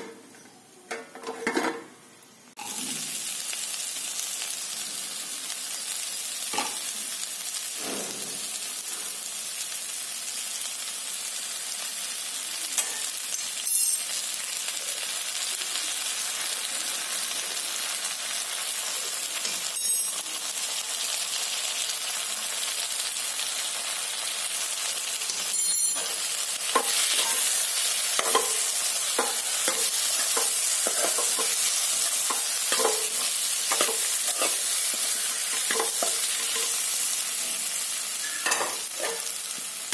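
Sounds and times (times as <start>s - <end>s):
vegetables sizzling in a pan: 2.2s - 39.9s.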